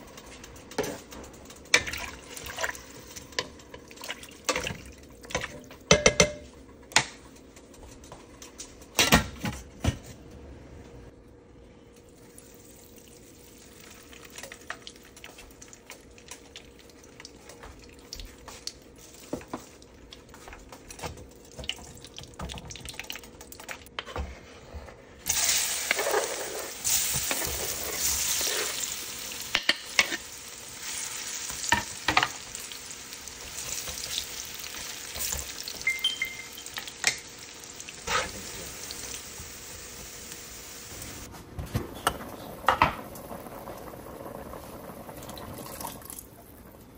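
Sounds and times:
fat frying with crackling: 0:00.0 - 0:06.0, 0:12.0 - 0:24.0, 0:25.2 - 0:46.9
vegetables sizzling in hot fat: 0:25.3 - 0:41.3.

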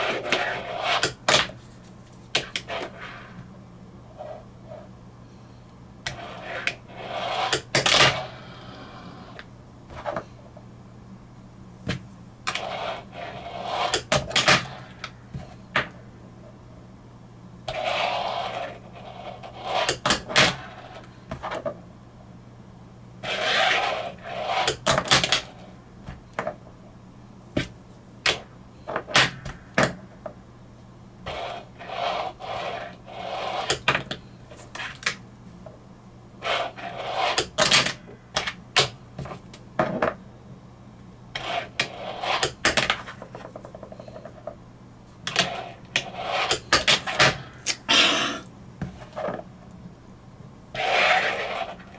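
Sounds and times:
steady low hum: 0:00.0 - 0:51.9
small wheels rolling on tabletop: 0:06.1 - 0:09.3, 0:12.5 - 0:15.0, 0:17.7 - 0:21.1, 0:23.2 - 0:25.6, 0:31.3 - 0:34.0, 0:36.4 - 0:37.6, 0:45.3 - 0:47.2, 0:50.8 - 0:51.9.

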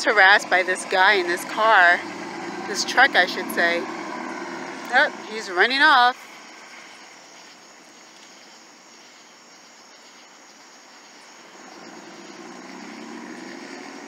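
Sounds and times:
low engine hum: 0:00.0 - 0:08.0, 0:11.4 - 0:14.0
insects chirring: 0:00.0 - 0:14.0.

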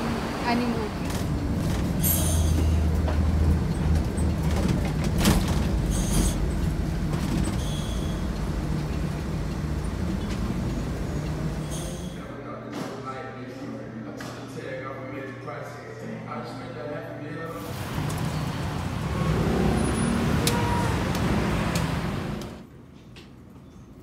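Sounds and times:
bus engine rumble: 0:00.0 - 0:12.3, 0:17.6 - 0:22.7
road noise: 0:00.0 - 0:12.3, 0:17.5 - 0:22.7.

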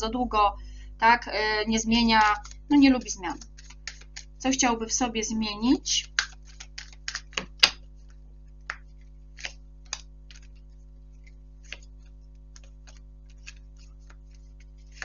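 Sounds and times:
faint steady hum: 0:00.0 - 0:15.0
cards clicking and tapping on table: 0:02.2 - 0:02.6, 0:03.4 - 0:04.4, 0:06.1 - 0:10.6, 0:11.2 - 0:15.0.

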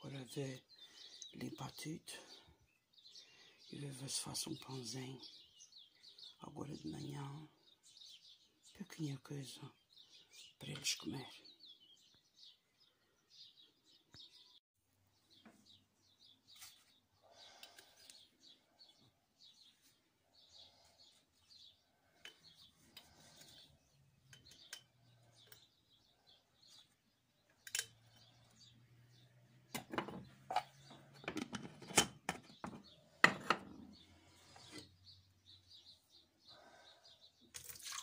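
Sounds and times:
small birds chirping: 0:00.0 - 0:38.0
handling clicks and knocks: 0:29.8 - 0:33.8.

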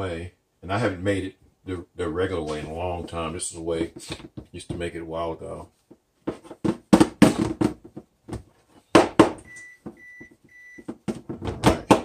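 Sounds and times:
kitchen appliance beeps: 0:09.4 - 0:10.9.

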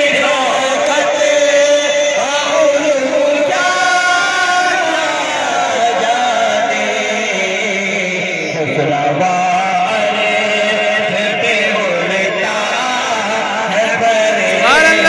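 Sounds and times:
men singing devotional poetry: 0:00.0 - 0:15.0.

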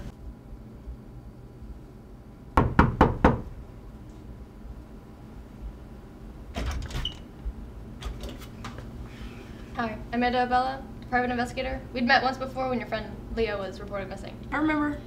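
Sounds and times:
knocks on a door: 0:02.6 - 0:03.5.

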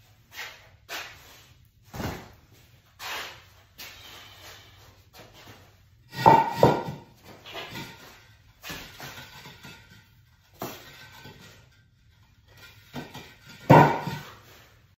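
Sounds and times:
concrete blocks knocking and grinding: 0:06.0 - 0:14.9
concrete blocks crashing down: 0:06.1 - 0:08.0, 0:12.6 - 0:14.4.

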